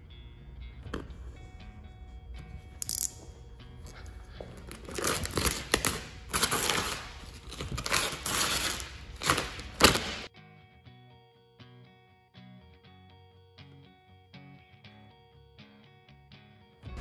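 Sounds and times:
quiet plucked guitar music: 0.0s - 4.4s
squeegee scraping vinyl film: 4.7s - 10.3s.

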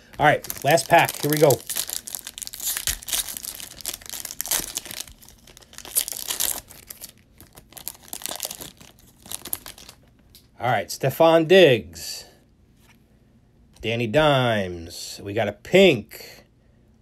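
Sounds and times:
foil wrapper crinkling and tearing: 0.1s - 10.0s.

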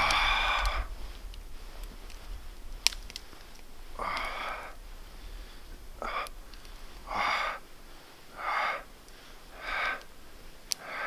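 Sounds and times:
man breathing deeply: 0.0s - 11.0s.

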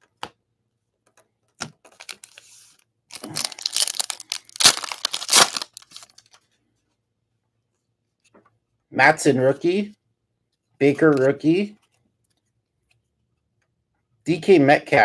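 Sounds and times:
wrapper crinkling and tearing: 1.9s - 2.4s, 3.1s - 6.4s.

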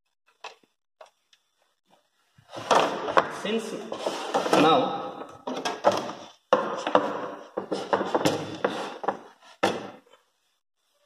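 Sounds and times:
rubbing and scraping: 2.4s - 4.9s, 6.1s - 10.1s
knocks and clunks of handled equipment: 2.5s - 3.4s, 4.3s - 10.3s.

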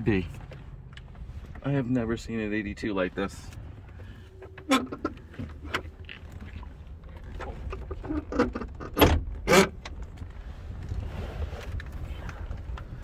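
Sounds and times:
low steady rumble: 0.0s - 13.0s
clicks and knocks inside a car: 3.0s - 11.0s, 11.6s - 13.0s.

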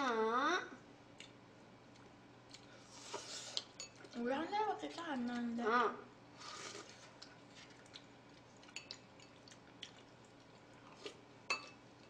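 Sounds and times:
slurp from a bowl: 6.4s - 7.2s.

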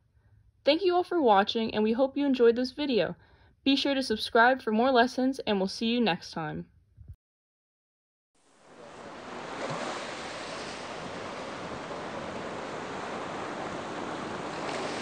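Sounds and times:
ocean waves washing in: 8.5s - 15.0s.

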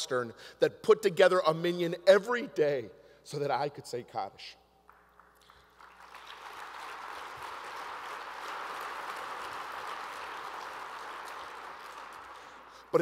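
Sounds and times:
audience applauding: 4.9s - 13.0s.

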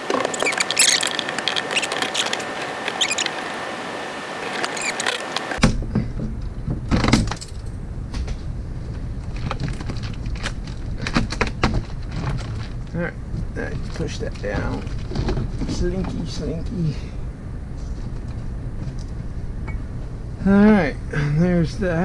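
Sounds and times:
clicking and rattling of wiring: 4.5s - 13.0s
low rumble: 5.7s - 21.2s.

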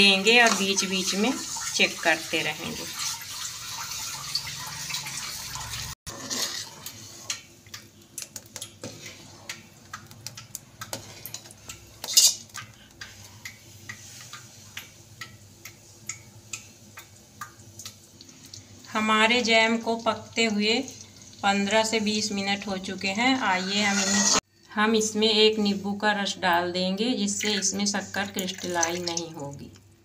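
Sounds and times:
metal spoon scraping a pan: 6.1s - 7.5s, 10.9s - 13.2s, 23.4s - 24.4s.

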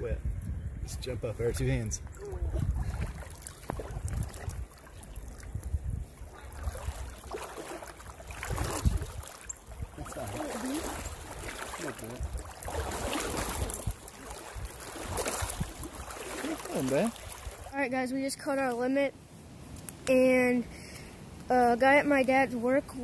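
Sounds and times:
wind rumbling on microphone: 0.0s - 18.0s
stream rushing: 2.3s - 18.6s.

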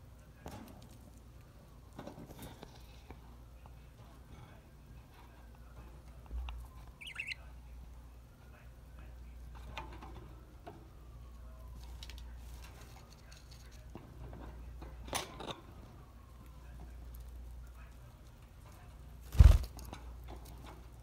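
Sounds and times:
birds pecking and crunching: 0.2s - 10.9s, 11.7s - 15.6s, 16.4s - 21.0s
bird chirp: 6.9s - 7.5s.

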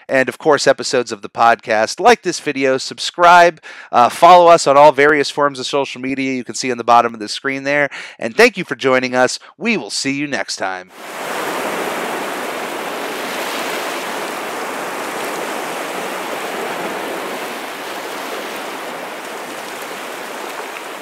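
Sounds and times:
rushing water: 10.9s - 21.0s.

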